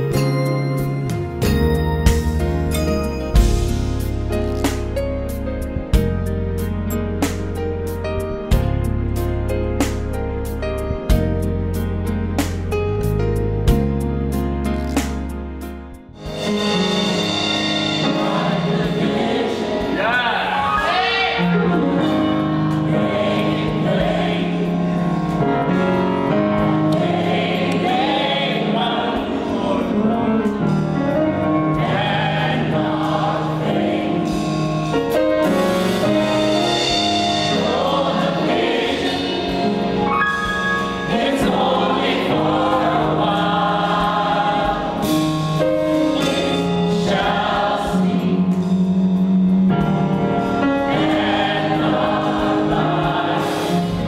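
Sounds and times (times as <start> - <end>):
bass guitar low notes: 1.2 - 16.4, 48.3 - 50.9
choir singing in parts: 16.4 - 54.0.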